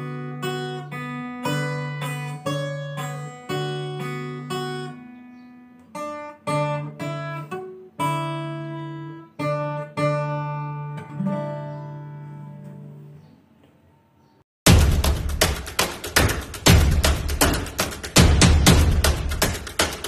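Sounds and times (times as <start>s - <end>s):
fingerstyle acoustic guitar: 0.0s - 13.3s.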